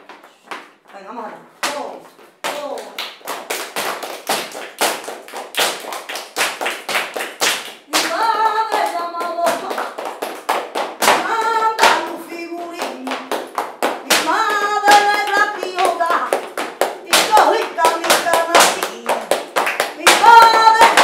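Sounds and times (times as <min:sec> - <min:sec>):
rhythmic hand-clapping: 0:01.6 - 0:21.0
person singing: 0:07.9 - 0:10.0, 0:11.0 - 0:19.3, 0:19.9 - 0:21.0.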